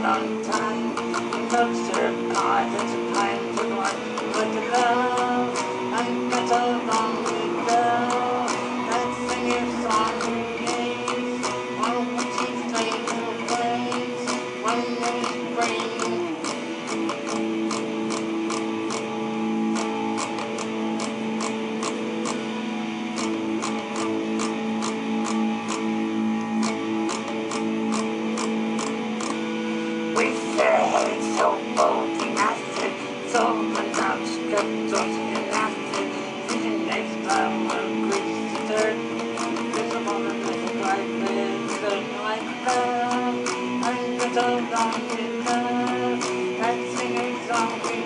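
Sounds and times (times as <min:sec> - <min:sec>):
electric guitar rock song: 0:00.0 - 0:48.0.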